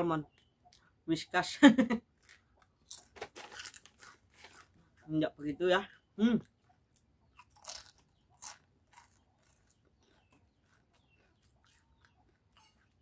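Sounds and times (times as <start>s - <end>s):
potato chip crunching: 2.2s - 4.8s, 6.9s - 13.0s.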